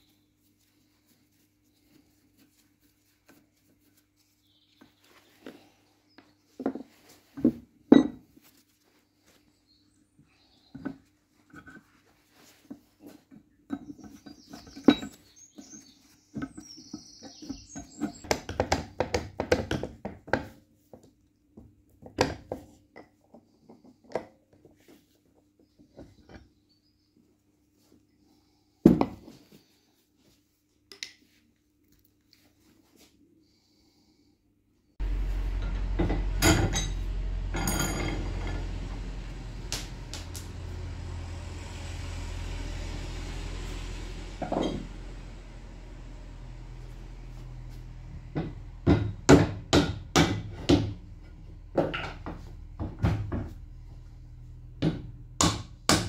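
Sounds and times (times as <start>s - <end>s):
metal scrapes and clinks on vice: 36.4s - 38.8s.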